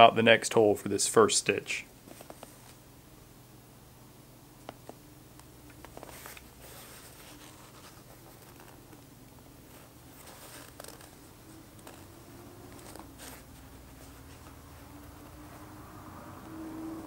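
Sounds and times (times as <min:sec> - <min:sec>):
steady low hum: 0:00.0 - 0:17.0
needle scratching through neoprene: 0:05.8 - 0:09.0, 0:09.6 - 0:15.7.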